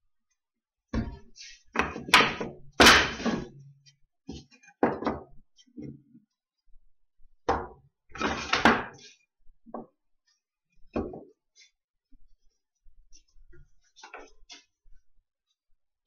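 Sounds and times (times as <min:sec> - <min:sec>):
wooden boards knocking on workbench: 0:04.8 - 0:05.3.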